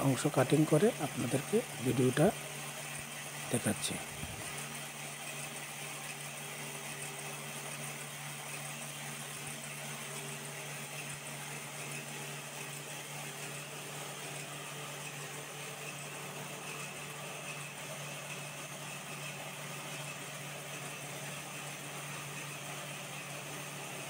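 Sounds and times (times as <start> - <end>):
tyre buffing machine running: 0.0 - 24.0.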